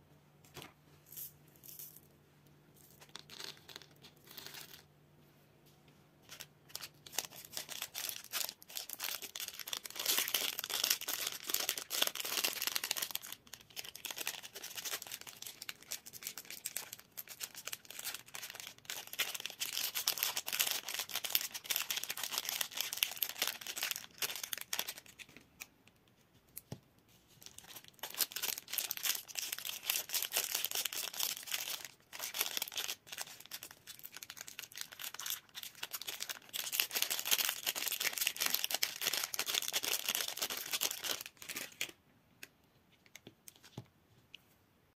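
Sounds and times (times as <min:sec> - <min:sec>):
plastic wrapper crinkling and tearing: 0:06.3 - 0:25.7, 0:27.4 - 0:42.0.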